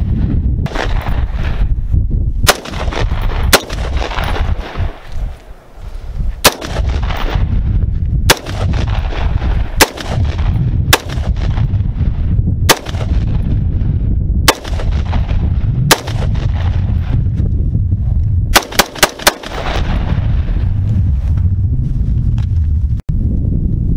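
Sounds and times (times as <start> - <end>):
steady low rumble: 0.0 - 23.9
rifle shots with echo: 0.6 - 1.6, 2.4 - 5.1, 6.4 - 7.5, 8.3 - 12.0, 12.6 - 13.6, 14.4 - 17.1, 18.5 - 20.2.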